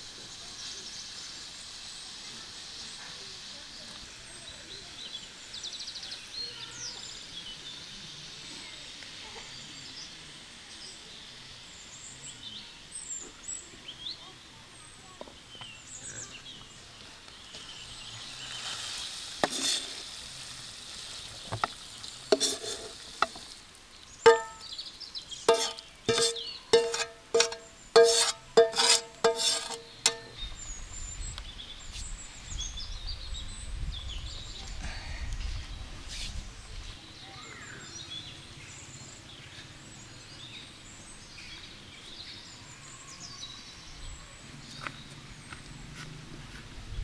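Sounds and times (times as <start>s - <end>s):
high background hiss: 0.0s - 47.0s
sharp knocks and clatters: 24.3s - 24.6s, 25.5s - 30.4s.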